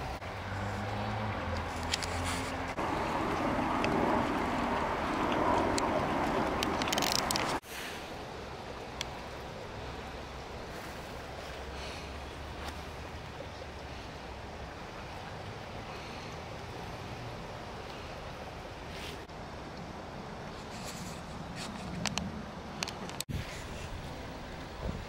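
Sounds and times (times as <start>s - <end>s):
low hum: 0.0s - 7.6s.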